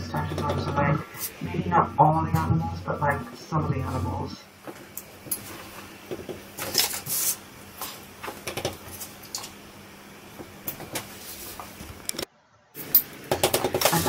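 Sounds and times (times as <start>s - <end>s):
paper rustling and sliding: 6.6s - 8.0s, 10.9s - 11.8s.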